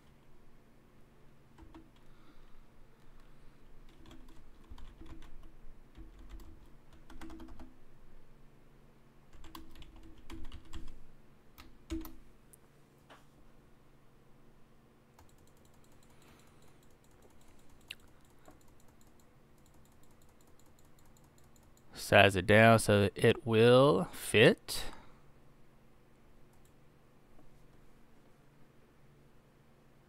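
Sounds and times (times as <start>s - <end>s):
typing on computer keyboard: 1.6s - 2.1s, 3.9s - 7.7s, 9.3s - 11.0s, 11.6s - 12.2s, 15.2s - 21.9s.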